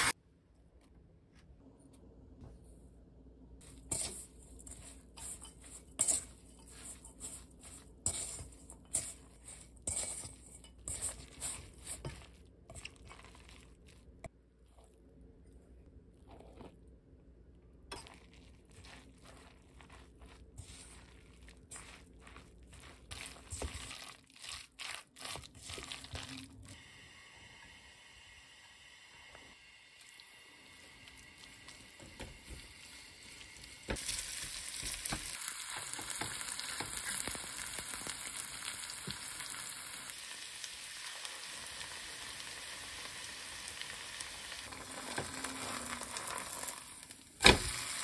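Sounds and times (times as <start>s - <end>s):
food rustling and squishing in bowl: 3.6s - 17.2s, 17.8s - 26.8s.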